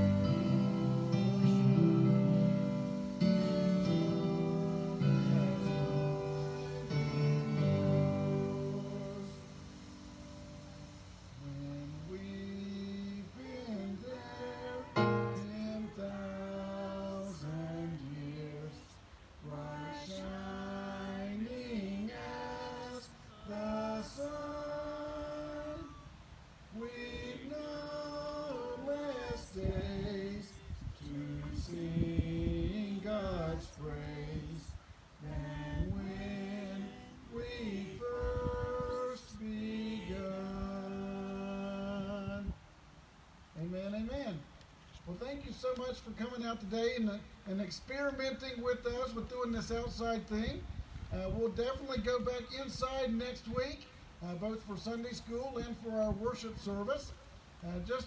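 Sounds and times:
woman singing hymn: 0.0s - 9.8s, 11.4s - 42.6s.

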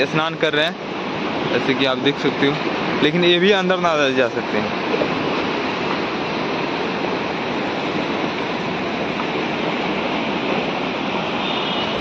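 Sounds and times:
river rushing into waves: 0.0s - 12.0s.

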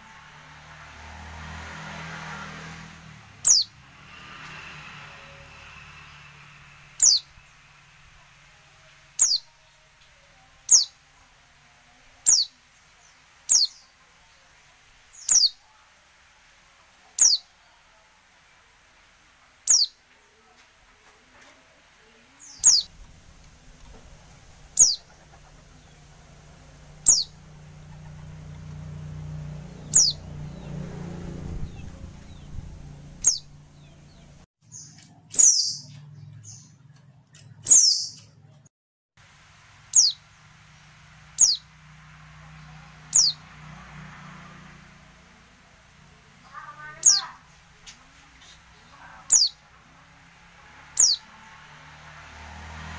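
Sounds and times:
bird high downward-sliding calls: 3.4s - 3.8s, 7.0s - 7.4s, 9.2s - 9.5s, 22.5s - 23.0s, 24.1s - 28.8s, 29.8s - 34.3s, 46.6s - 47.5s
low rumble: 22.8s - 34.5s.

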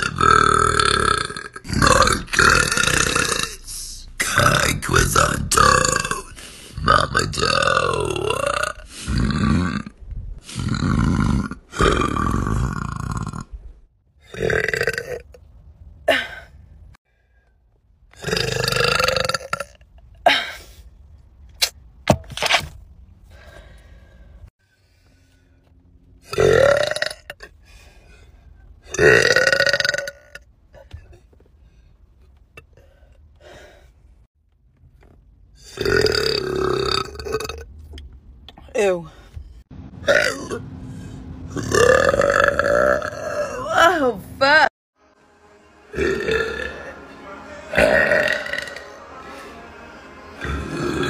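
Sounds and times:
woman burping: 16.0s - 16.5s, 18.2s - 20.6s, 47.7s - 48.8s.

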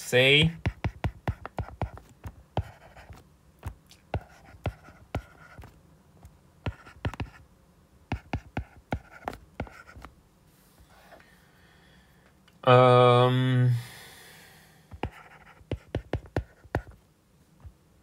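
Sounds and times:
stylus tapping on glass screen: 15.0s - 17.0s.

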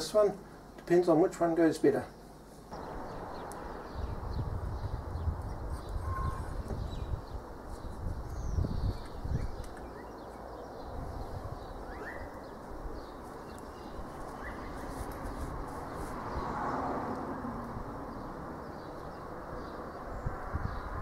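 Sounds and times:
bird chirps: 2.8s - 15.0s.

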